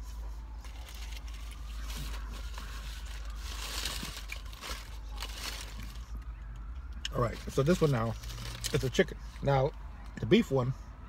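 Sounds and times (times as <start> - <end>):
paper wrapper crinkling: 0.6 - 6.3, 7.2 - 9.0.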